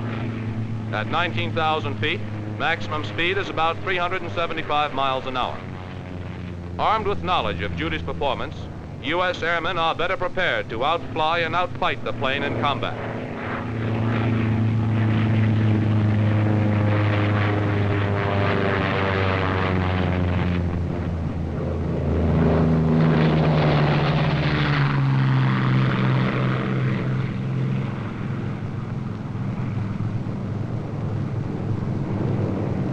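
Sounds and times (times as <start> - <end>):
propeller airplane flying past: 0.0 - 32.9.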